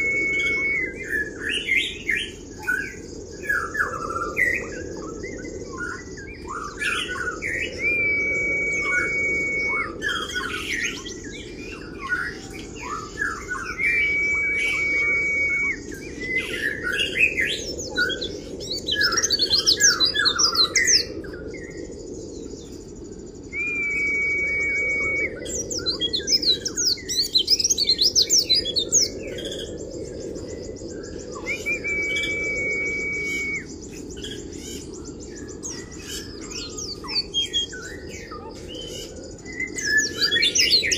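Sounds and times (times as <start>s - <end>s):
bird long whistled note: 0.0s - 1.7s, 7.1s - 18.3s, 23.4s - 29.2s, 31.4s - 33.9s
bird twittering and trilling: 0.0s - 40.9s.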